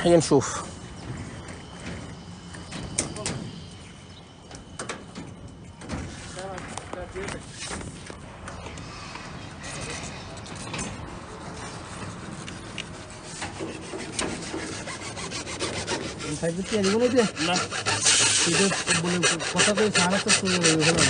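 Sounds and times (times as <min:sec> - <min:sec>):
plastic squealing on steel: 0:13.0 - 0:21.0.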